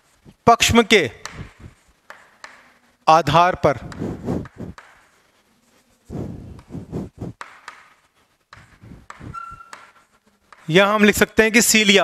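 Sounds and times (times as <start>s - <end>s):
chalk scratching on blackboard: 3.8s - 10.7s
high chalk squeak: 8.6s - 10.1s.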